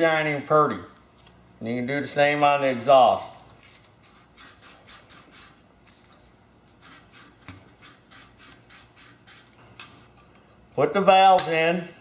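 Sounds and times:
emery paper rasping on valve seat: 6.8s - 9.6s.

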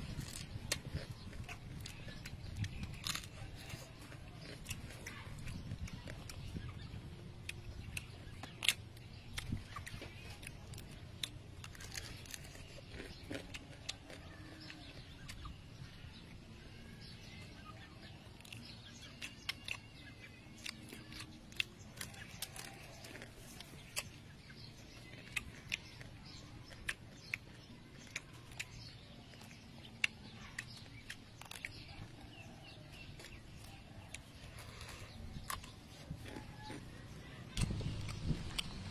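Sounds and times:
crab shells cracking: 0.0s - 6.9s, 7.5s - 15.5s, 18.0s - 38.8s
chewing: 0.0s - 38.9s.

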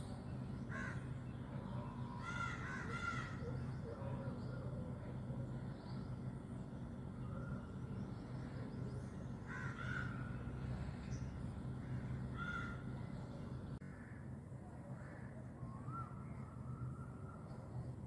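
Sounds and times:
low background hum: 0.0s - 18.0s
crow cawing: 0.7s - 1.1s, 2.1s - 3.5s, 9.5s - 10.4s, 11.8s - 13.0s.

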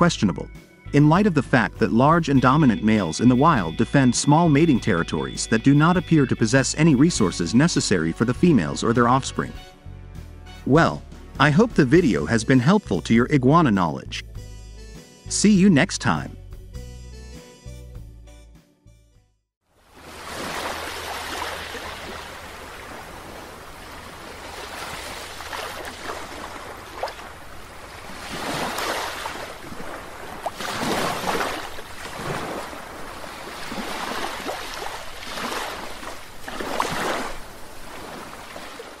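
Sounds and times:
ocean waves on shore: 19.7s - 39.0s.

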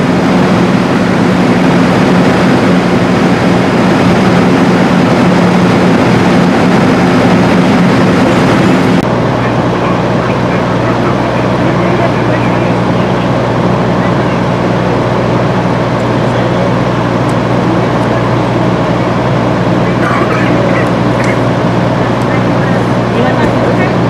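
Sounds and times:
large engine humming: 0.0s - 24.0s.

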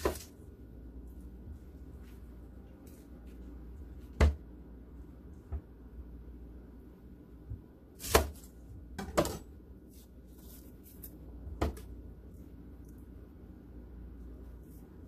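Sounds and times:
onion skin rustling: 0.0s - 0.5s, 9.8s - 11.4s.

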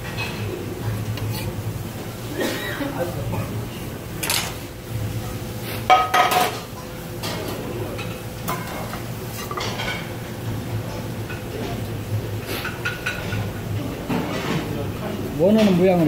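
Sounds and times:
metal frying pan clanking: 5.9s - 6.6s.

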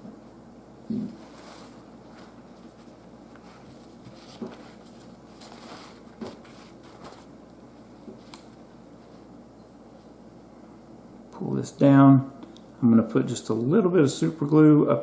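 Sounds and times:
paper towel rustling: 1.1s - 9.4s.

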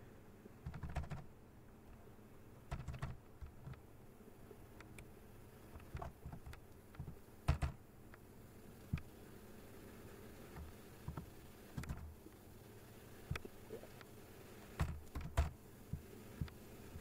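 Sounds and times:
computer keyboard typing: 0.6s - 1.3s, 2.7s - 3.8s.

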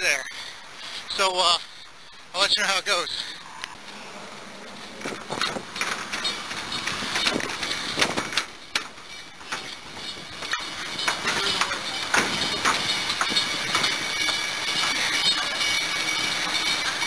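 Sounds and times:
outdoor city noise: 0.0s - 17.0s
footsteps: 3.6s - 17.0s
train clatter and wheel squeal: 5.0s - 17.0s.

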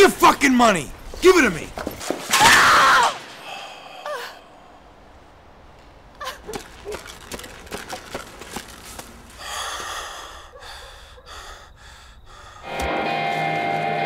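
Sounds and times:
man breathing hard: 3.4s - 5.0s, 9.4s - 12.8s.

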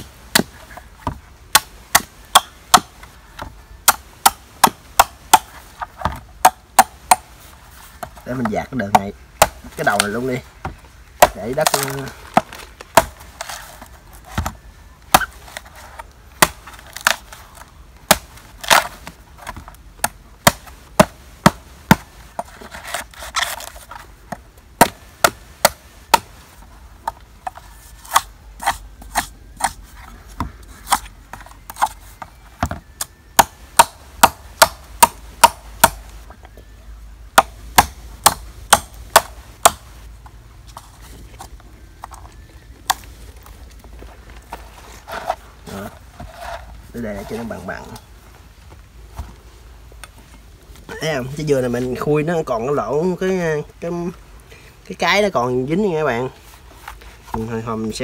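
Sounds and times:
machete chopping coconut husk: 0.3s - 7.3s, 8.0s - 23.8s, 24.8s - 26.4s, 28.0s - 29.8s, 30.8s - 36.1s, 37.3s - 39.9s.

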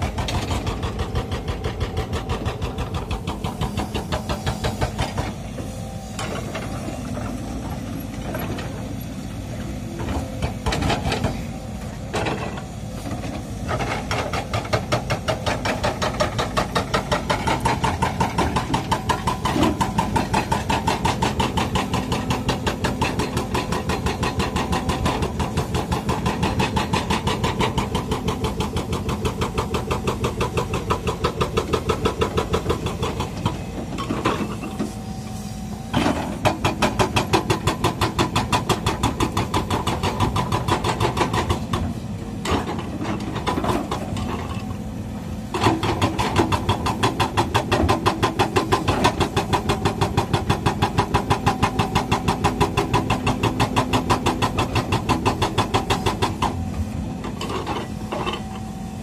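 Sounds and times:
excavator diesel engine under load: 0.0s - 59.0s
excavator digging stony ground: 0.0s - 59.0s.

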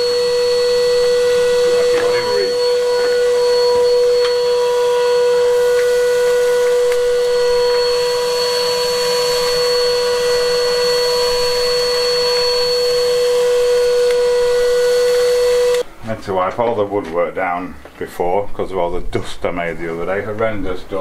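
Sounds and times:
vacuum cleaner running: 0.0s - 15.9s.

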